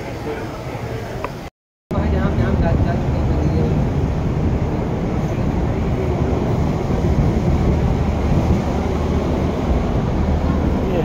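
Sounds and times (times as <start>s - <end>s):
loud low outdoor rumble: 0.0s - 11.0s.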